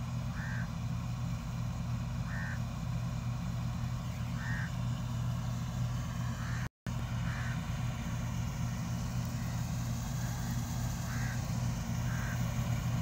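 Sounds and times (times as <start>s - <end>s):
distant combine harvester engine: 0.0s - 13.0s.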